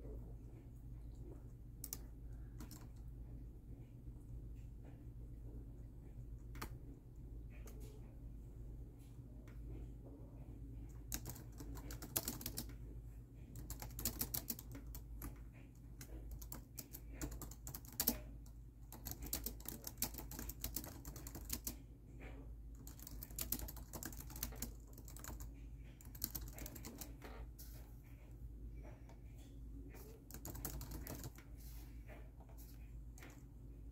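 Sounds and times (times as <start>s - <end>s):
faint low hum: 0.0s - 33.9s
laptop keyboard typing: 1.8s - 3.1s, 6.4s - 7.0s, 10.9s - 12.9s, 13.5s - 27.8s, 29.9s - 31.5s.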